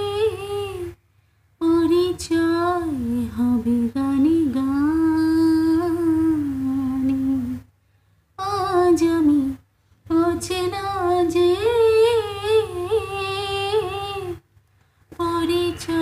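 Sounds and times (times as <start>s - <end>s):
woman singing without words: 0.0s - 1.0s, 1.6s - 7.7s, 8.4s - 14.4s, 15.1s - 16.0s.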